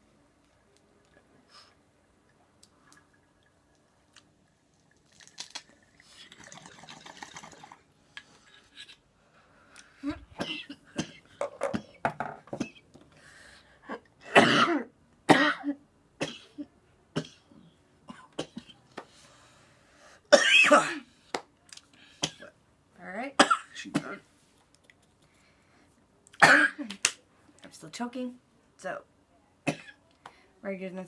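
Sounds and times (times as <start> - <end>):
bong bubbling: 2.3 - 7.9
person coughing: 14.2 - 17.5, 20.3 - 21.1, 26.4 - 26.9.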